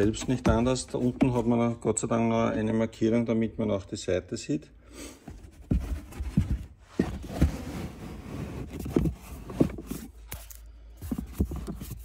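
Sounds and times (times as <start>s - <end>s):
rubber scraping: 5.5s - 12.0s.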